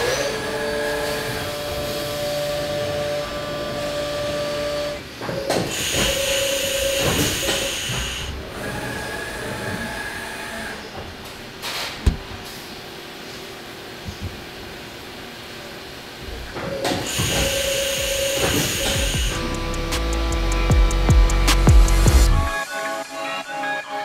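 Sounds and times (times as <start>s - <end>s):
machine spindle whine: 0.0s - 11.0s, 16.6s - 20.7s
coolant jets hissing: 5.7s - 8.6s, 17.0s - 19.9s.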